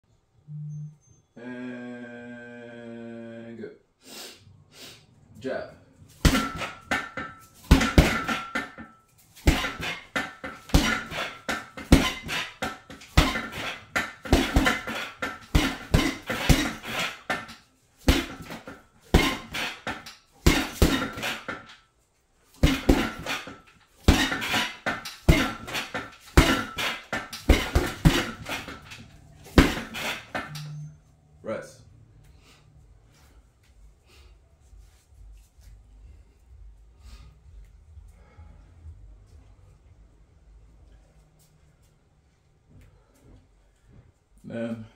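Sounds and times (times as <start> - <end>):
gloved punches on heavy bag: 6.2 - 8.8, 9.4 - 21.7, 22.6 - 30.5
metal stand clanking: 6.2 - 21.8, 22.6 - 30.9.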